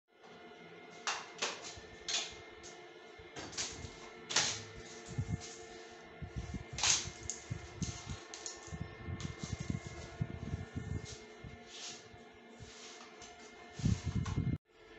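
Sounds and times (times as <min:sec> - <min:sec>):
quiet background music: 0:00.2 - 0:14.9
low pulsing beat: 0:03.8 - 0:14.6.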